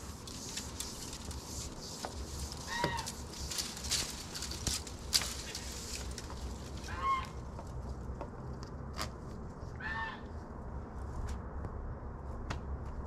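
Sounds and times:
poultry calling: 0:02.7 - 0:03.2, 0:06.8 - 0:07.4, 0:09.8 - 0:10.3.

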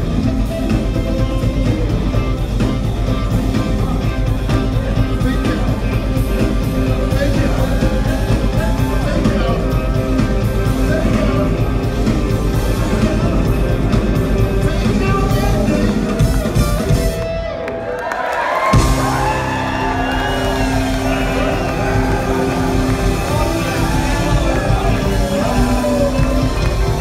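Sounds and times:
live rock band playing: 0:00.0 - 0:27.0
person singing: 0:04.8 - 0:16.3, 0:20.9 - 0:27.0.

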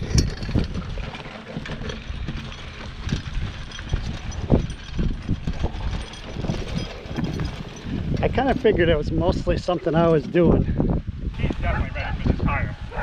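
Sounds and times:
chain clinking: 0:00.0 - 0:08.2
tire scraping over dirt: 0:00.0 - 0:11.0.

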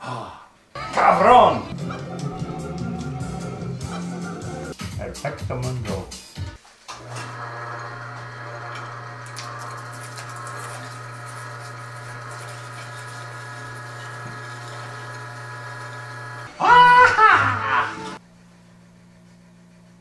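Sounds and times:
small electric motor humming: 0:07.0 - 0:16.6.

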